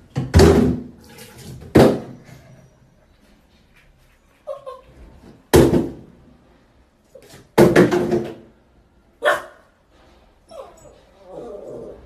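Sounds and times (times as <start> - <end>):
paws thumping bathtub: 0.0 - 2.3.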